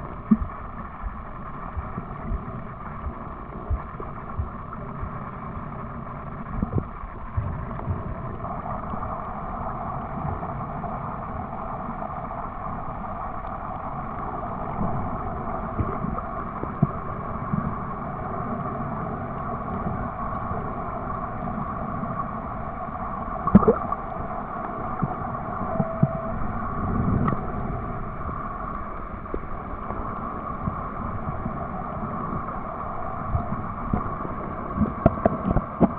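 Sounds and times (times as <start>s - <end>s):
underwater hiss and rumble: 0.0s - 35.9s
underwater clicks and knocks: 23.5s - 23.9s, 34.8s - 35.9s.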